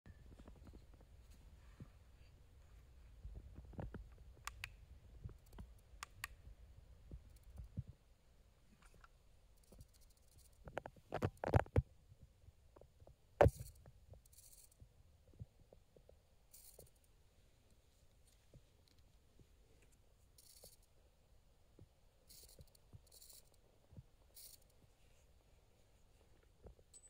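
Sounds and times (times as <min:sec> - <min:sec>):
small clicks and knocks: 0:03.3 - 0:06.5, 0:08.7 - 0:11.9.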